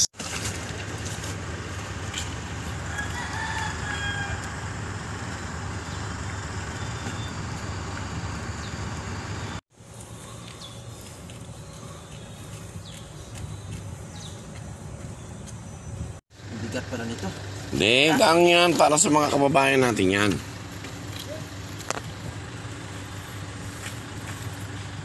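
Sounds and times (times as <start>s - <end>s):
rooster crowing faintly: 2.8s - 4.7s.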